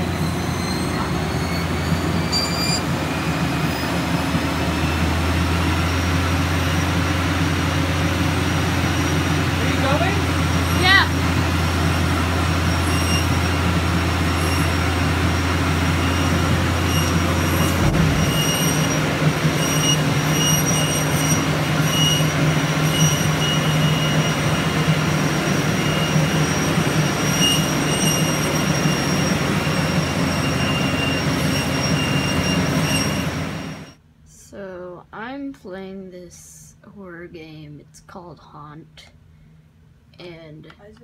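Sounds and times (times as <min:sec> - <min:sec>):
wheels squealing on belt: 0:00.0 - 0:34.0
treadmill hum: 0:04.1 - 0:34.0.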